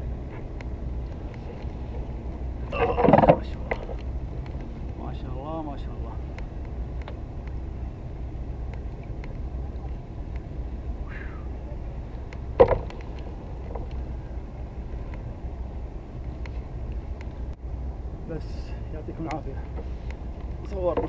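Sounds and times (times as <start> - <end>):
low rumble: 0.0 - 21.0
faint ticks: 19.2 - 21.0.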